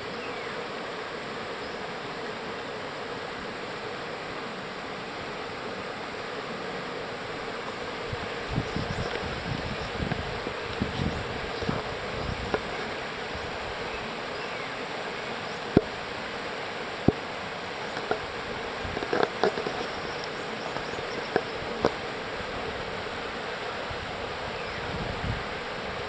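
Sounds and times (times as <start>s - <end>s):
faint steady hum: 0.0s - 26.0s
river rapids rushing over rocks: 0.0s - 26.0s
sharp clicks and taps: 17.9s - 18.2s, 18.9s - 22.0s.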